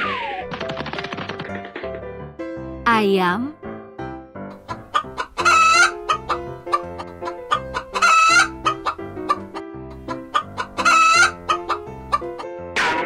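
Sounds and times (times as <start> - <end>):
light plucked background music: 0.0 - 13.0
chicken calling: 4.6 - 12.4.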